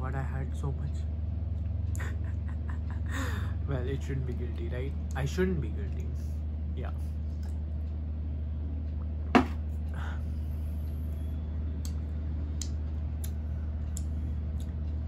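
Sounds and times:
steady low hum: 0.0s - 15.0s
glass knocking on table: 9.4s - 9.6s.

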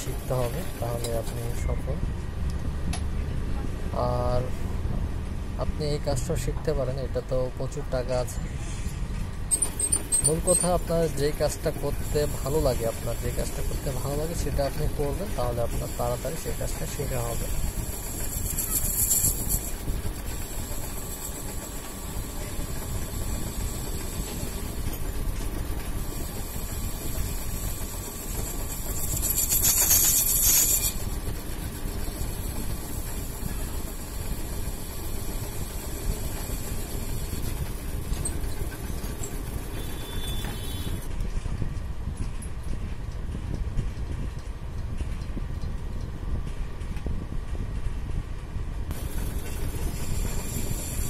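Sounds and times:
lathe rumbling: 0.0s - 1.6s, 9.0s - 41.2s, 48.9s - 51.0s
lathe tool cutting steel: 0.0s - 1.7s, 9.5s - 25.4s, 26.0s - 41.1s, 48.9s - 51.0s.

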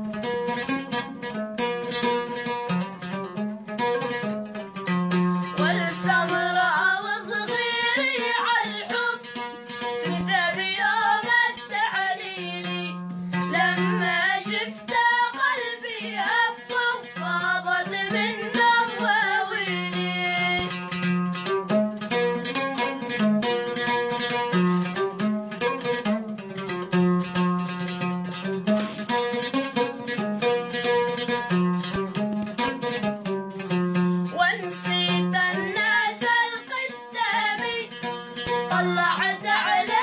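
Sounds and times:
oud plucked: 0.0s - 40.0s
boys singing folk song: 5.5s - 20.9s, 34.3s - 40.0s.

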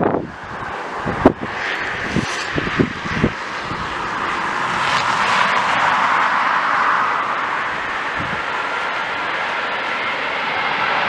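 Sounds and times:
jet engines roaring: 0.0s - 11.0s
wind buffeting microphone: 0.0s - 11.0s.

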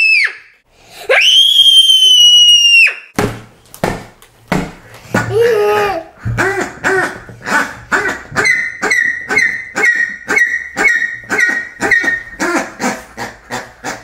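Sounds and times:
squeaky toy squeaks: 8.4s - 12.4s.

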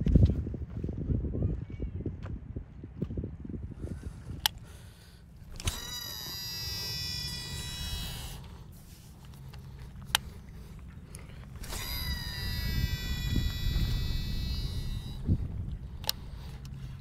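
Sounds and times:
fishing reel brake whine: 4.7s - 17.0s
sharp clicks: 5.4s - 8.6s, 9.2s - 17.0s.

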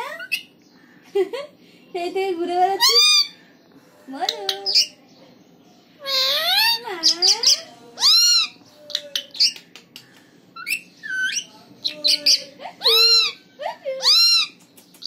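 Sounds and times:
parakeet squawking: 0.0s - 0.6s, 2.8s - 3.4s, 4.5s - 5.0s, 6.0s - 9.6s, 10.6s - 14.6s
parakeet chirps and clicks: 4.2s - 5.0s, 7.0s - 13.3s, 14.0s - 15.0s.

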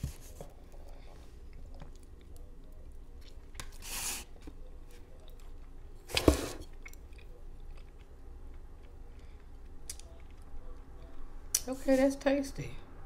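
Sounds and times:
person chewing: 6.6s - 11.6s.

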